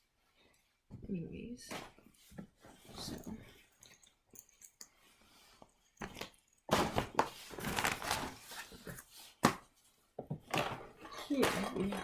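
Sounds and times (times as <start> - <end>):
packaging rustling and knocking: 6.0 - 12.0.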